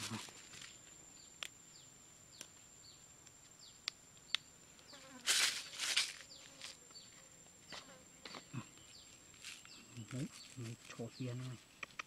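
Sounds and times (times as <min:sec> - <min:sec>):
rustle of handling: 0:00.0 - 0:01.0, 0:04.8 - 0:11.8
sharp ticks: 0:11.8 - 0:12.0.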